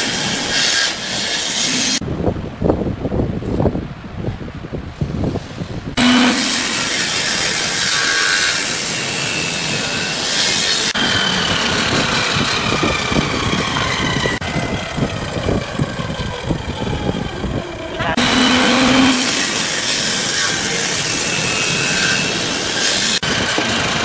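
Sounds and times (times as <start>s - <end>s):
table saw cutting wood: 0.0s - 2.0s, 6.0s - 14.5s, 16.2s - 24.0s.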